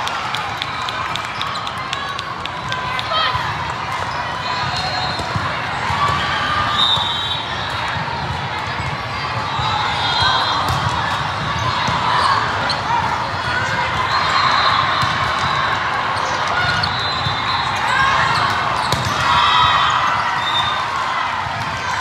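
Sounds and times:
ball hits and bounces: 0:18.4 - 0:19.4.

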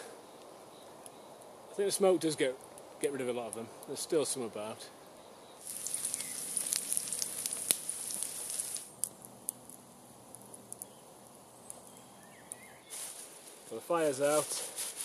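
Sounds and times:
wood fire popping: 0:00.0 - 0:15.0
food sizzling in a pan: 0:05.6 - 0:09.0.

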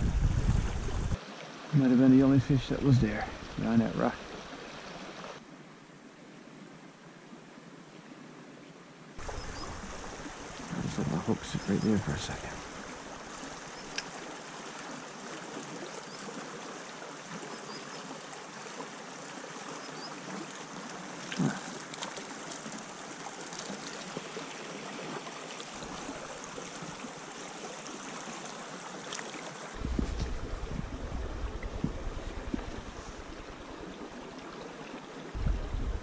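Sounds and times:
brook running over rocks: 0:00.4 - 0:05.4, 0:09.2 - 0:36.0
low rumble: 0:29.8 - 0:33.6.

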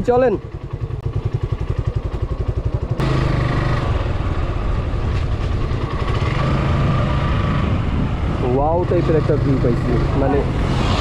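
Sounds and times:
motorcycle engine: 0:00.0 - 0:11.0
wind noise: 0:04.1 - 0:11.0.

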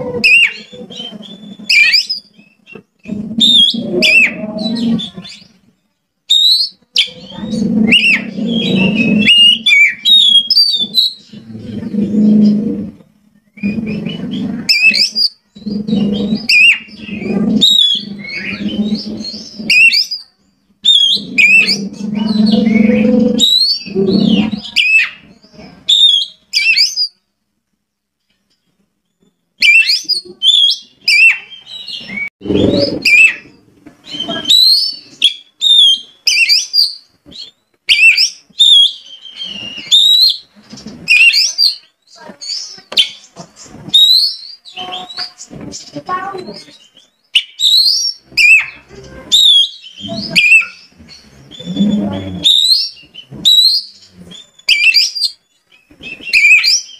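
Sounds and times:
magpie-robin singing: 0:06.3 - 0:11.4, 0:13.5 - 0:27.2, 0:29.6 - 0:40.5, 0:41.1 - 0:56.9.

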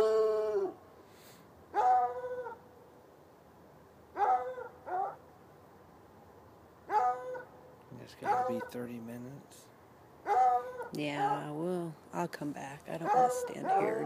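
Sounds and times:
hound barking: 0:01.7 - 0:02.6, 0:04.2 - 0:05.2, 0:06.9 - 0:07.5, 0:08.2 - 0:08.8, 0:10.2 - 0:11.4, 0:13.0 - 0:14.0.

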